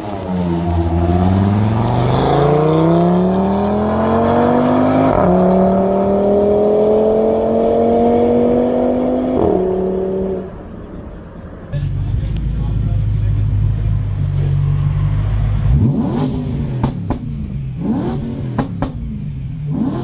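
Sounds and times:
car engine accelerating: 0.0s - 10.7s, 11.8s - 20.0s.

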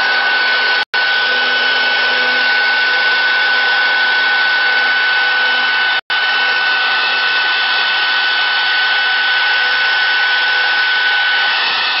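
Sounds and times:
router spindle whining: 0.0s - 12.0s.

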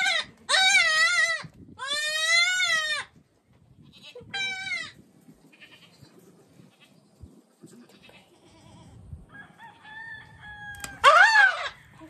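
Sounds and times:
baby goat bleating: 0.0s - 3.1s, 3.8s - 6.9s, 7.7s - 9.0s.

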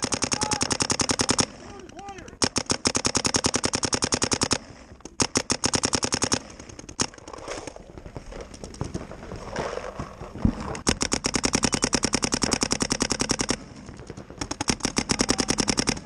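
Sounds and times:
paintball markers firing: 0.0s - 7.2s, 10.8s - 16.0s.

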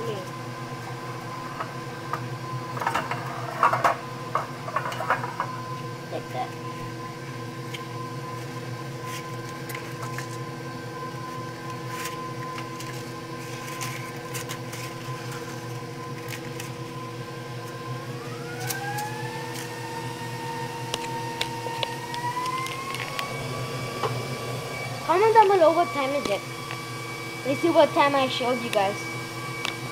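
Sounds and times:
steady machine hum: 0.0s - 29.9s
rising machine whine: 15.8s - 29.9s.

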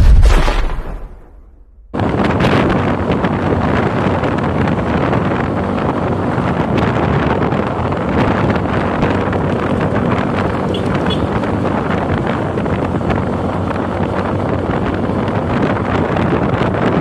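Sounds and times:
low rumble: 0.0s - 3.9s
wind buffeting microphone: 1.8s - 17.0s.

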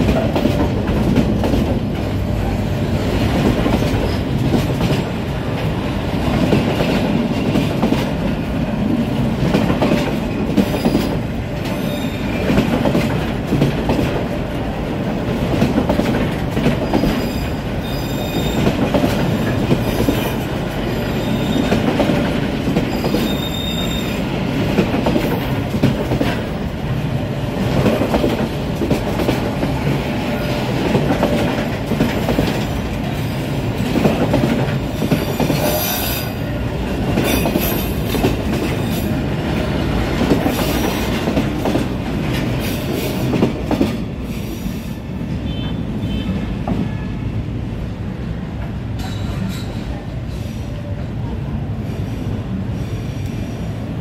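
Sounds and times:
clacks over rail joints: 0.0s - 2.5s, 3.2s - 8.5s, 9.2s - 14.6s, 15.3s - 17.4s, 24.5s - 35.8s, 37.0s - 44.1s
train wheels rumbling on rails: 0.0s - 54.0s
high-pitched wheel squeals: 22.9s - 24.2s.

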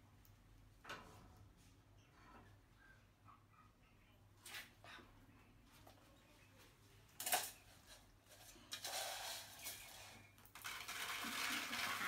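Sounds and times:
hard objects scraping and rustling: 7.2s - 12.0s.

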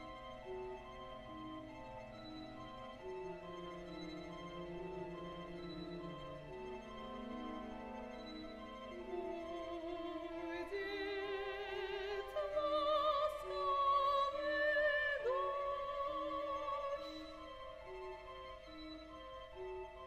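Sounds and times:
sustained orchestra strings: 0.0s - 20.0s
soprano singing with vibrato: 9.1s - 17.4s.

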